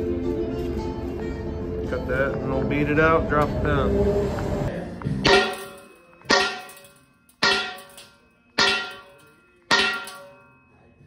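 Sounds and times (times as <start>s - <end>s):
hammer blows on steel: 5.2s - 10.5s.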